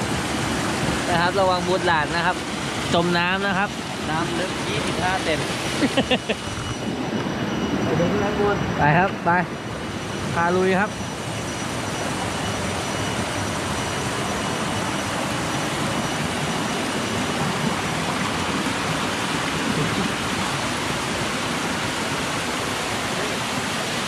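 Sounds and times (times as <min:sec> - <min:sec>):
water cascading over rocks: 0:00.0 - 0:06.7, 0:11.6 - 0:24.0.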